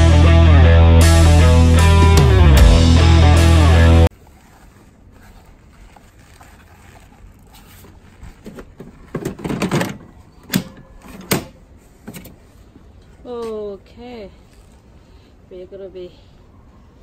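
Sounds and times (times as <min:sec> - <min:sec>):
plastic scraping and rustling: 0:04.1 - 0:10.2.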